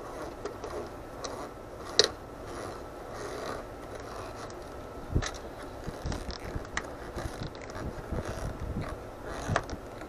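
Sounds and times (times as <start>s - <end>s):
screwdriver turning a screw: 6.0s - 9.8s.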